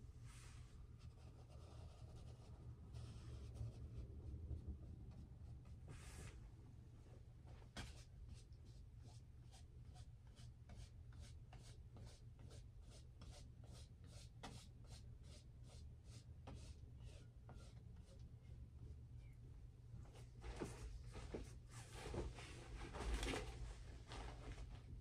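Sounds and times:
low steady hum: 0:00.0 - 0:25.0
paintbrush stroking canvas: 0:00.3 - 0:04.0, 0:05.9 - 0:06.4, 0:07.6 - 0:19.4.

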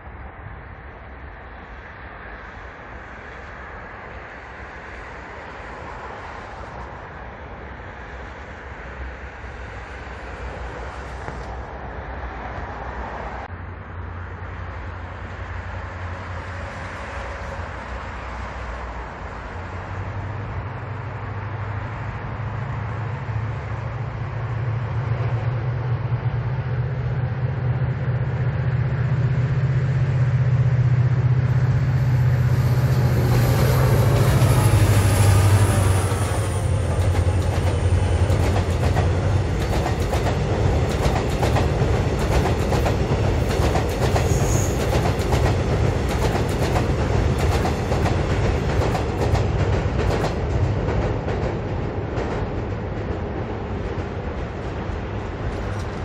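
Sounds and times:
locomotive engine drone: 0:13.3 - 0:56.0.

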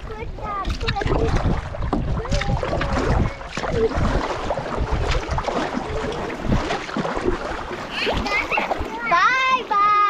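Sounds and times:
wind buffeting microphone: 0:00.0 - 0:09.6
canoe paddles splashing: 0:00.0 - 0:10.0
water washing along hulls: 0:00.0 - 0:10.0.

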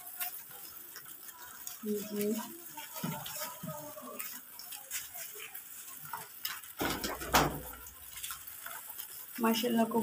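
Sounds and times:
birds pecking on straw: 0:00.0 - 0:10.0.

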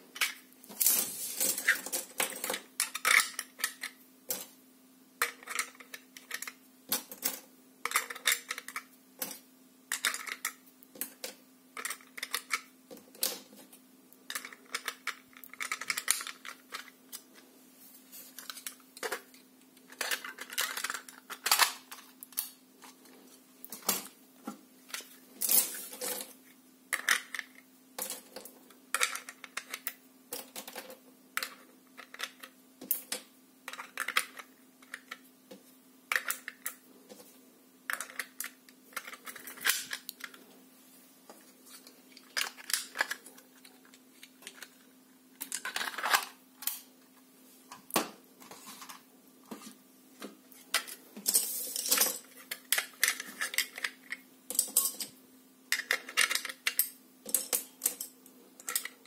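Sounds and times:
faint steady hum: 0:00.0 - 0:59.0
plastic parts clicking and clattering: 0:00.1 - 0:04.6, 0:05.2 - 0:17.4, 0:18.2 - 0:37.3, 0:37.9 - 0:40.5, 0:41.7 - 0:46.9, 0:47.7 - 0:59.0.

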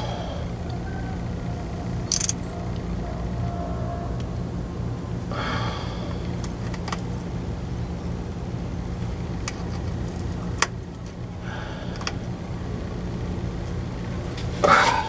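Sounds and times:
steady low hum: 0:00.0 - 0:15.0
sharp metal clicks: 0:02.0 - 0:02.5
metal parts scraping: 0:02.1 - 0:02.5.

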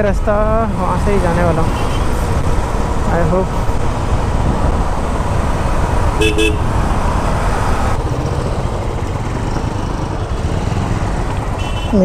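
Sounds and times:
road and wind noise: 0:00.0 - 0:12.0
motorcycle engine running: 0:01.9 - 0:12.0
vehicle horn toot: 0:06.2 - 0:06.7, 0:11.6 - 0:12.0.

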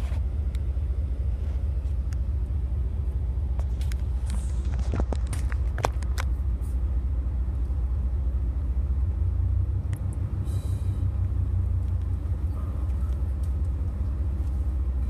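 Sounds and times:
truck engine rumbling at low revs: 0:00.0 - 0:15.0.

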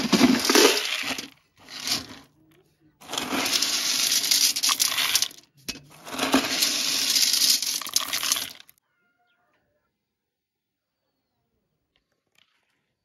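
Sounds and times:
grain pouring into metal tub: 0:00.0 - 0:02.3, 0:03.0 - 0:08.7.

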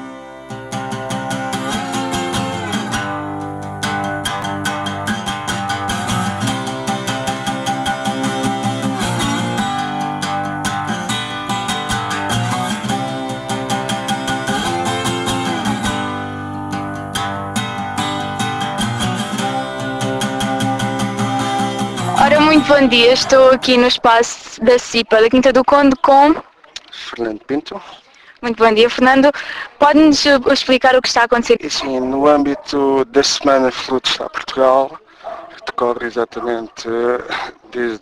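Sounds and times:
guitar background music: 0:00.0 - 0:26.0.

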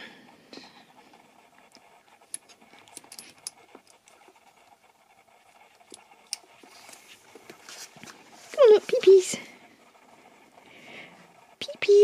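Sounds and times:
faint rustling: 0:03.6 - 0:11.7.

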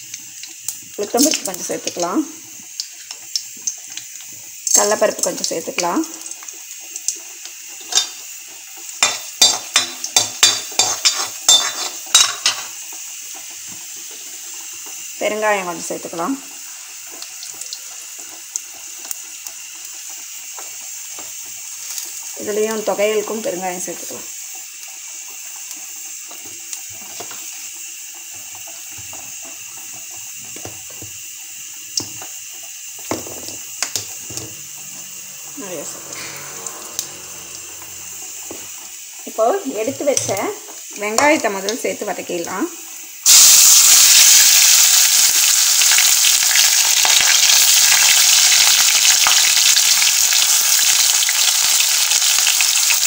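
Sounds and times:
seeds sizzling in hot oil: 0:00.0 - 0:53.0
metal spatula scraping a pan: 0:09.0 - 0:12.7.

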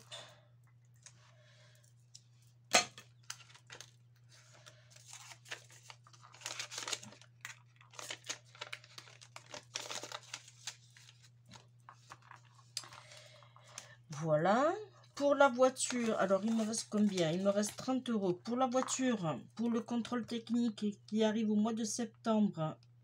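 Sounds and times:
paper and plastic rustling: 0:03.2 - 0:14.0, 0:15.0 - 0:19.8.

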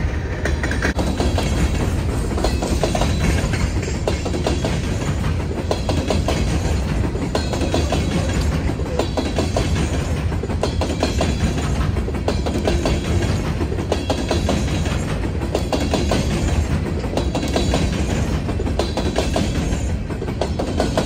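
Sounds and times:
clanks over rail joints: 0:00.0 - 0:21.0
train wheels rumbling on rails: 0:00.0 - 0:21.0.

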